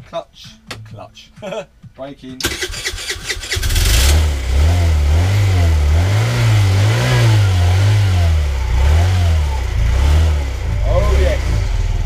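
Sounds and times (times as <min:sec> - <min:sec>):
electric starter cranking: 0:02.4 - 0:04.5
moped engine revving: 0:02.4 - 0:12.0.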